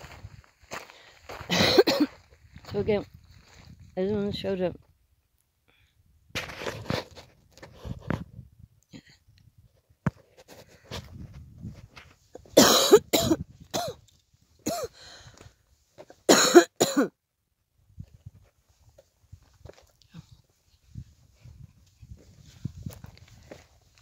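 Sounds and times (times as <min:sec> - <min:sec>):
person coughing harshly: 0:01.5 - 0:02.2, 0:12.6 - 0:14.0, 0:14.6 - 0:15.0, 0:16.3 - 0:17.1.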